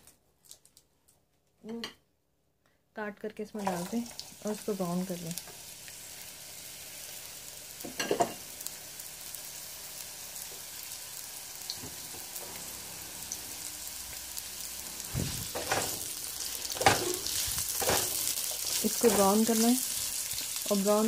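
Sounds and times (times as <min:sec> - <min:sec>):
onions sizzling in hot oil: 0:03.6 - 0:21.0
spatula stirring onions: 0:05.4 - 0:21.0.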